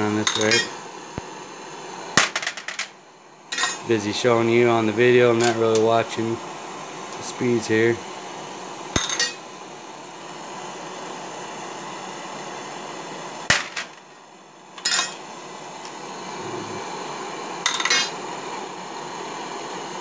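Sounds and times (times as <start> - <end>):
torch hissing: 0.0 - 2.4, 3.2 - 20.0
metal cases clinking into tray: 17.7 - 18.1.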